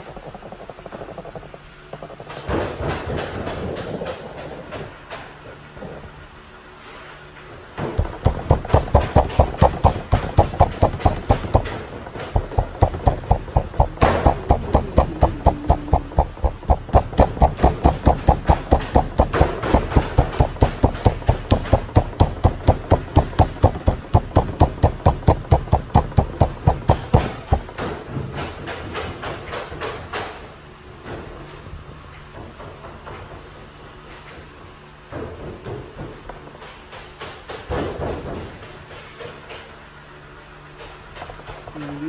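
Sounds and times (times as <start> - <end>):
pressing and rubbing dough: 7.8 - 29.9.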